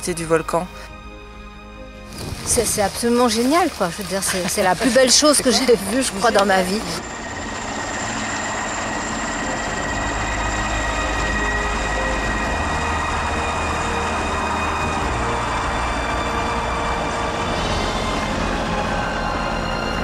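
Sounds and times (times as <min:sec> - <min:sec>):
turbine whine: 0:04.3 - 0:20.0.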